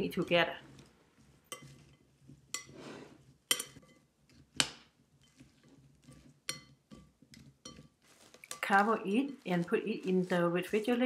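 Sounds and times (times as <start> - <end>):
soft rustle of vegetables: 0.0 - 11.0
utensils clinking on glass bowl: 1.5 - 2.0, 2.6 - 2.8, 3.5 - 4.0, 5.3 - 9.6.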